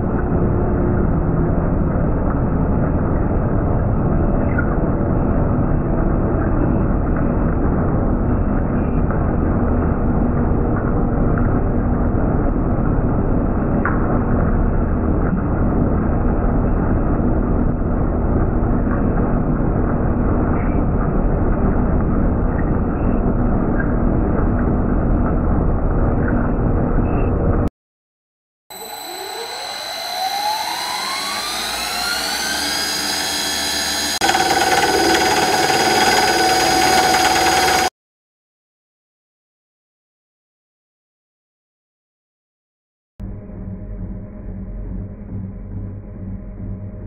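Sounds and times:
metal lathe running: 28.7s - 37.9s.

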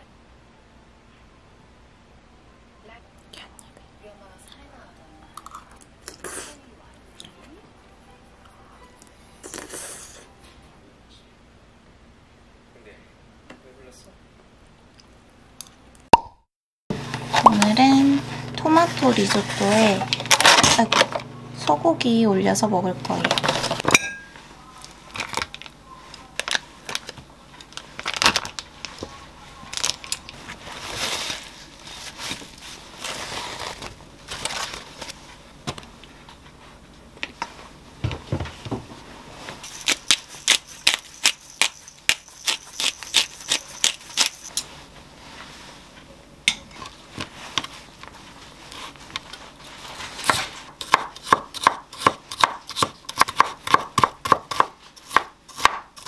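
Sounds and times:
paper towel rustling: 18.6s - 21.0s, 27.8s - 35.5s, 44.7s - 46.1s, 46.9s - 50.7s
knife chopping on a wooden board: 50.2s - 56.0s.

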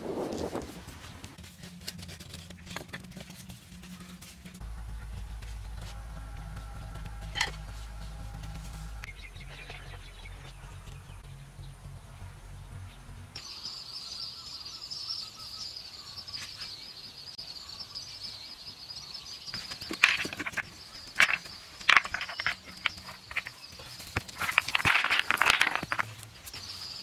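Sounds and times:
high-pitched wildlife chirring: 13.4s - 27.0s.

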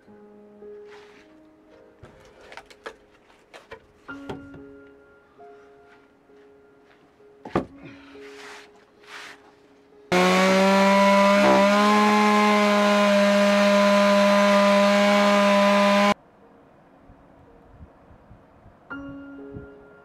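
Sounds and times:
chainsaw cutting log: 10.1s - 16.2s.

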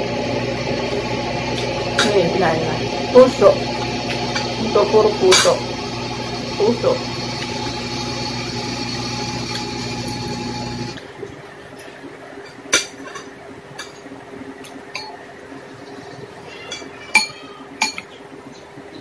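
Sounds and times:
machine drone: 0.0s - 11.2s.

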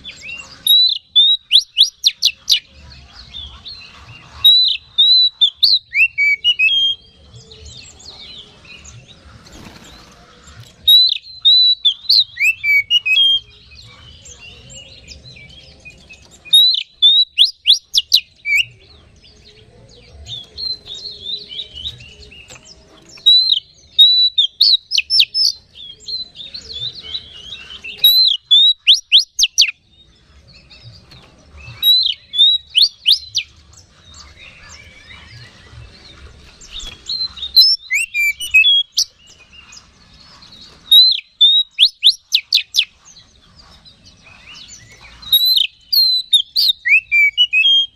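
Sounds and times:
soft bird twittering: 0.0s - 47.9s
bird singing whistled phrases: 0.7s - 2.6s, 4.4s - 7.1s, 10.9s - 13.6s, 16.5s - 18.8s, 23.2s - 26.4s, 27.3s - 29.8s, 31.7s - 33.5s, 37.3s - 39.1s, 40.9s - 42.9s, 45.3s - 47.9s.

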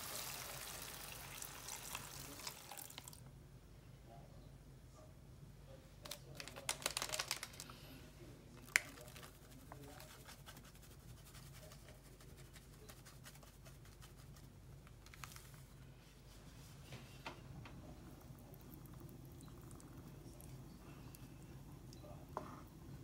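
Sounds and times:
foil sachet crinkling: 6.1s - 7.8s, 8.6s - 10.2s.

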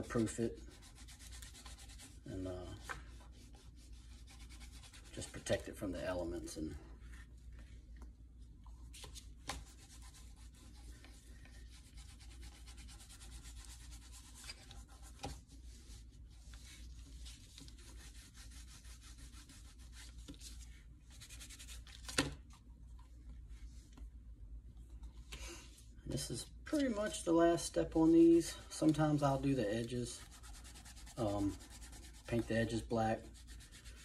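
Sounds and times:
cloth scrubbing leather: 0.2s - 5.6s, 9.6s - 21.8s, 29.0s - 34.0s.

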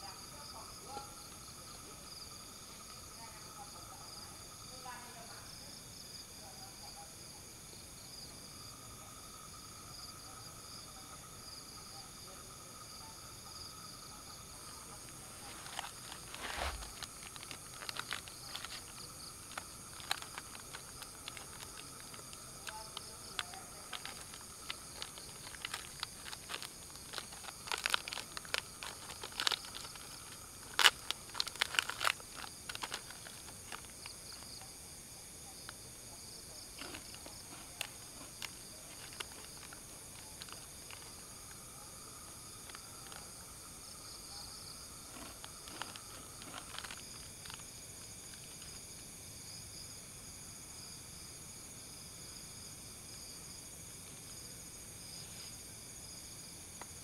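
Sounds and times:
night insects chirring: 0.0s - 57.0s
foil wrapper crinkling: 15.3s - 34.4s, 36.8s - 41.3s, 45.1s - 47.7s.

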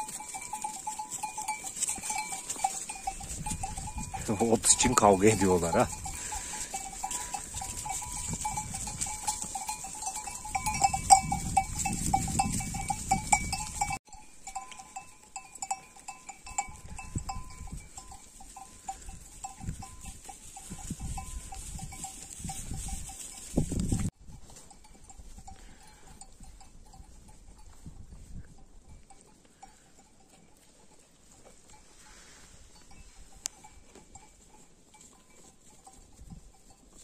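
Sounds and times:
sheep bells clinking: 0.0s - 37.0s.

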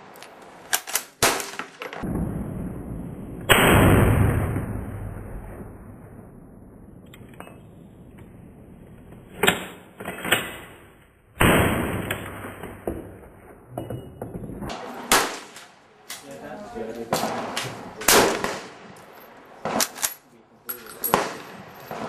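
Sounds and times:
rifle shot bang: 3.4s - 5.6s, 11.4s - 13.1s, 14.7s - 15.6s, 17.1s - 18.9s
rifle bolt metallic clacks: 19.8s - 22.0s.

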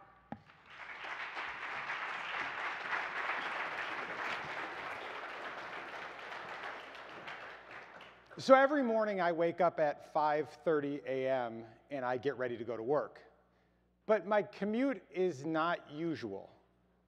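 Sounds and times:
audience applauding: 0.4s - 8.4s.

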